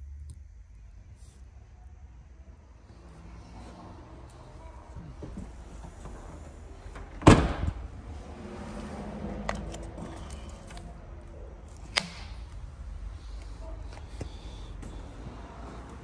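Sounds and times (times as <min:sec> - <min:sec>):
tailgate slamming: 0:06.2 - 0:08.1.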